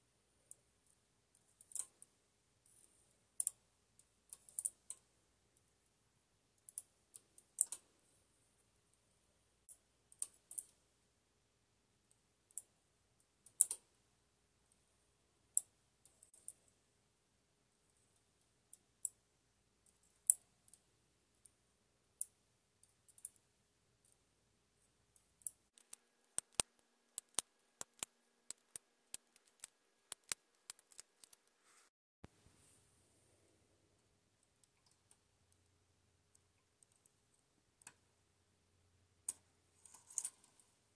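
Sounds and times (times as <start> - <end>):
knitting machine needle clicks: 1.4 - 2.1, 2.7 - 5.1, 6.6 - 8.0, 13.4 - 13.9, 25.2 - 31.5.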